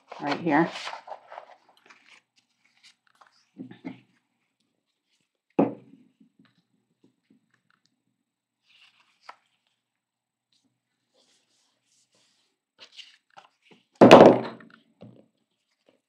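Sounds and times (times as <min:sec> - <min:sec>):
paper rustling: 0:00.0 - 0:04.2, 0:08.6 - 0:09.8, 0:11.0 - 0:14.0.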